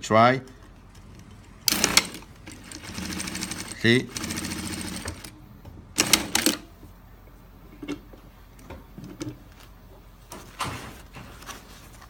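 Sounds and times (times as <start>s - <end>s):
sewing machine clicks: 0.9s - 5.4s, 6.0s - 6.7s.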